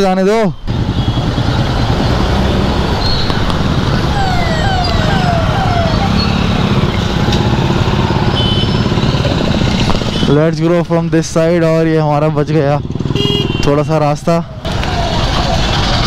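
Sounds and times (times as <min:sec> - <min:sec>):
traffic noise: 0:00.0 - 0:16.0
ambulance siren whooping: 0:00.3 - 0:09.4, 0:14.2 - 0:16.0
scooter engine: 0:00.7 - 0:09.9, 0:14.5 - 0:16.0.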